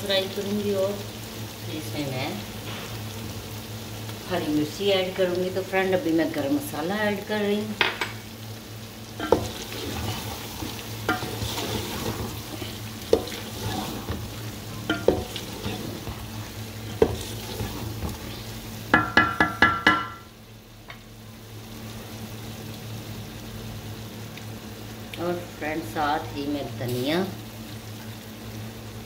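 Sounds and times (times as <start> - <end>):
frying sizzle: 0.0 - 29.0
spatula knocking against pot: 18.9 - 20.2.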